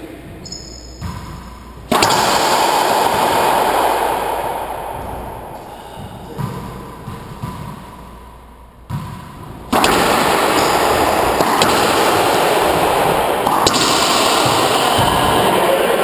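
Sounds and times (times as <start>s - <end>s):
racquetball smacks: 0.5s - 8.2s, 8.8s - 16.0s
loud steady rushing noise: 1.9s - 7.1s, 9.7s - 16.0s.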